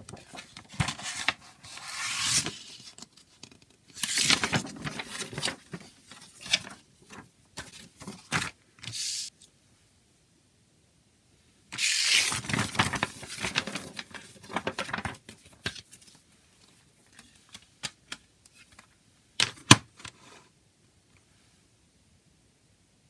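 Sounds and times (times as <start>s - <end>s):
paper crinkling and rustling: 0.0s - 9.2s, 11.8s - 18.9s.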